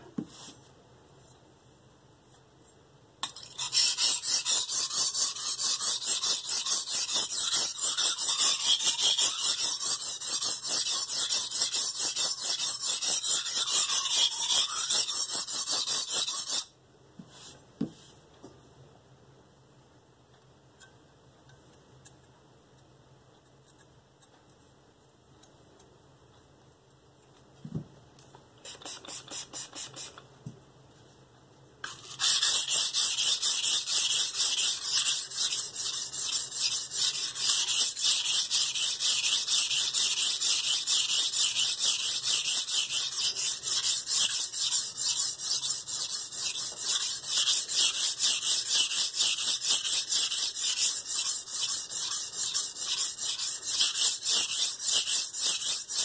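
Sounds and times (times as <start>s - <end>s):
knife scraping on whetstone: 3.2s - 16.7s, 31.8s - 56.0s.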